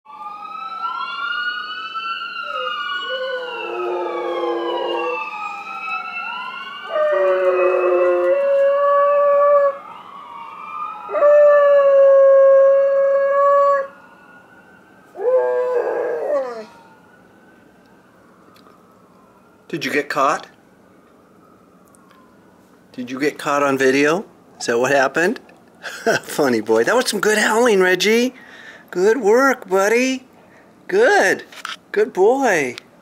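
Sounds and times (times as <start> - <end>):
ambulance siren wailing: 0.1 - 26.2
dog howling: 2.4 - 5.3, 6.8 - 9.8, 11.1 - 13.9, 15.2 - 16.8.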